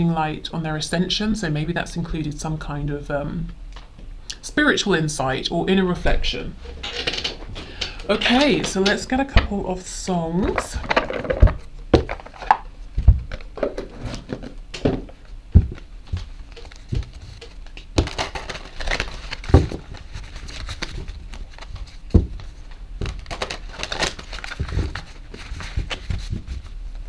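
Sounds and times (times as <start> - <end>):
cards being shuffled: 10.4 - 26.8.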